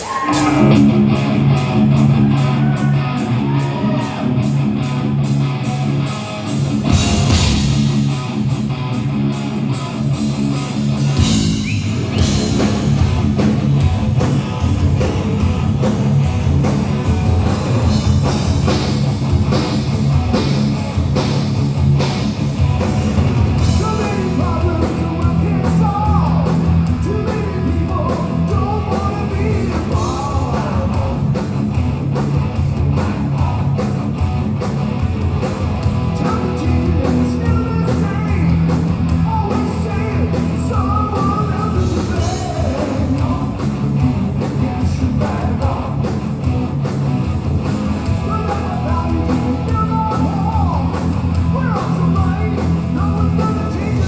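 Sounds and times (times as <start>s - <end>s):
bass guitar: 0.0s - 54.0s
distorted electric guitars: 0.0s - 54.0s
drum kit: 0.0s - 54.0s.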